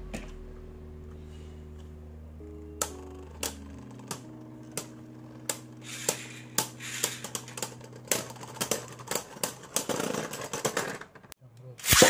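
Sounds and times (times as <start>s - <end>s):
spinning tops clashing: 5.8s - 10.8s
spinning tops whirring: 5.8s - 10.8s.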